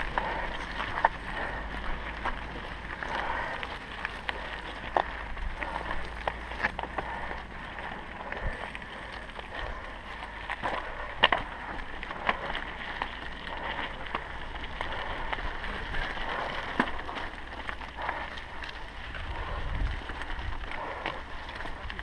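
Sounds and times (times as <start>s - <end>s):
bike rattling: 0.0s - 22.0s
tyres crunching on gravel: 0.0s - 22.0s
wind on microphone: 19.1s - 21.0s.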